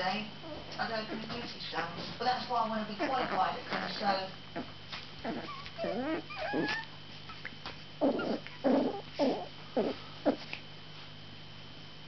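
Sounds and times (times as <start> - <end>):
puppies whining: 2.9 - 10.5
puppies yapping: 5.3 - 10.4.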